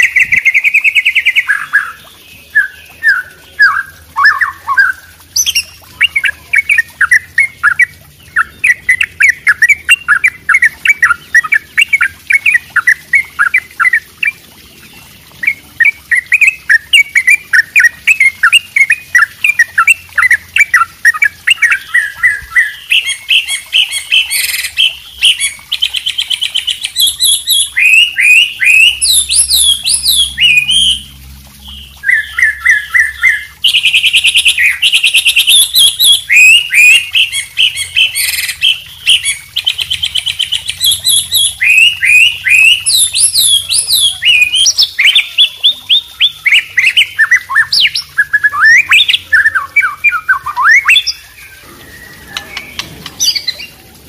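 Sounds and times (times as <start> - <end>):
songbirds singing: 0.0 - 54.0.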